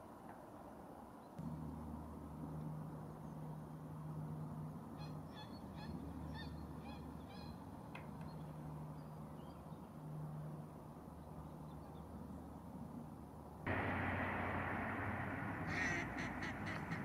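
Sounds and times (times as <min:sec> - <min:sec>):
steady low rumble: 0:01.4 - 0:05.0, 0:13.7 - 0:17.0
distant waterfowl calling: 0:04.1 - 0:08.5, 0:13.7 - 0:17.0.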